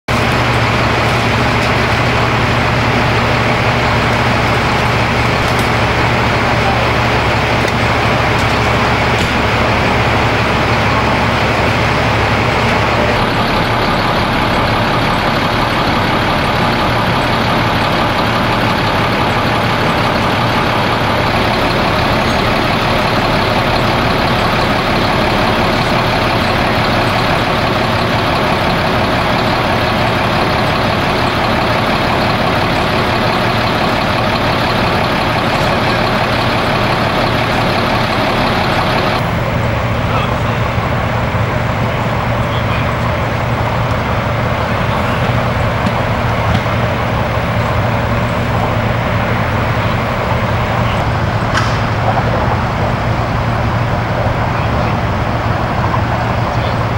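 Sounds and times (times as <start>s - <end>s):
heavy diesel engine idling: 0.0s - 56.9s.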